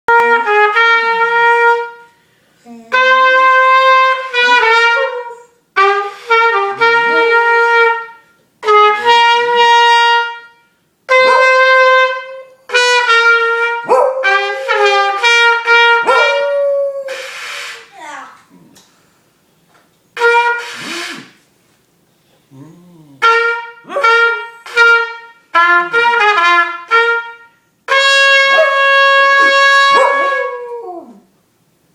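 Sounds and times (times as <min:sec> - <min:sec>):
trumpet playing held notes: 0:00.1 - 0:02.2, 0:02.9 - 0:17.9, 0:20.2 - 0:21.4, 0:23.2 - 0:31.0
dog howling: 0:29.9 - 0:31.3.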